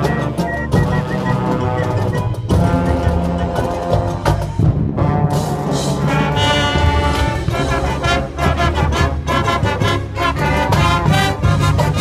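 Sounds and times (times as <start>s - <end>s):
bass drums: 0.0s - 12.0s
marching band brass chords: 0.0s - 12.0s
percussion hits: 0.0s - 12.0s.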